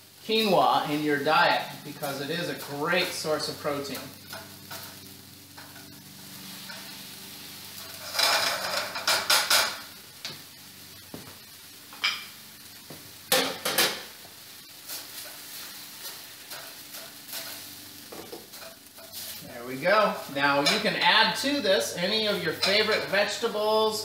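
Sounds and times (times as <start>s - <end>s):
spatula stirring in frying pan: 1.3s - 10.5s, 11.9s - 23.4s
pans and utensils clattering: 7.8s - 9.9s, 13.3s - 14.1s.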